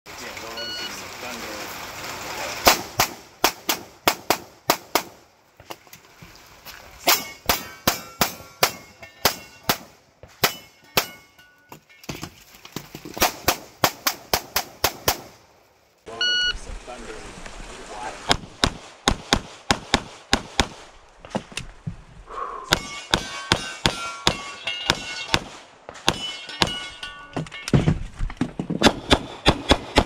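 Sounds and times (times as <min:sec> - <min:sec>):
metallic ring of steel targets: 0:07.0 - 0:09.8, 0:10.4 - 0:12.1, 0:22.7 - 0:25.4, 0:26.0 - 0:27.8.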